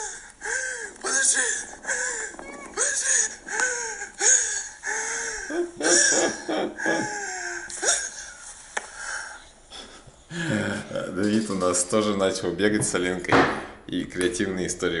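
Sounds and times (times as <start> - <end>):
breathy gasps: 0.0 - 2.5, 3.1 - 6.1.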